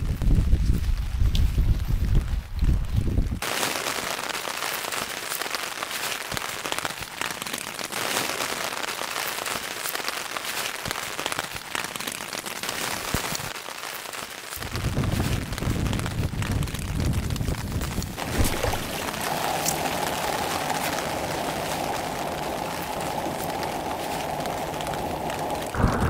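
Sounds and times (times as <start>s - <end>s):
wind buffeting microphone: 0.0s - 3.4s, 14.6s - 26.0s
rain falling on grass and pool: 0.0s - 26.0s.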